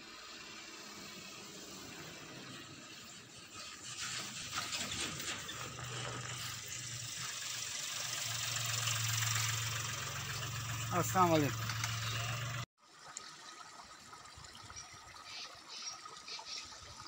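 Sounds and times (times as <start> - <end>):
engine running low hum: 0.0 - 12.7
rapid mechanical ticking and rattling: 0.1 - 12.6.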